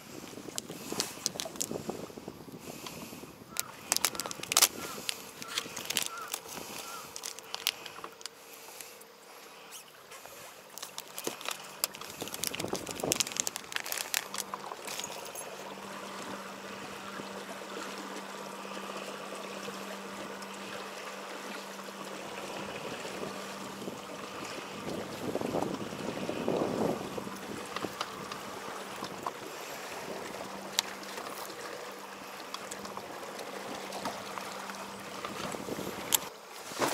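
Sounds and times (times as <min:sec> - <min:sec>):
rain hiss: 0:00.0 - 0:15.9
electric motor humming: 0:00.1 - 0:36.3
plastic bag rustling: 0:00.4 - 0:01.8, 0:03.6 - 0:08.9, 0:09.7 - 0:15.5.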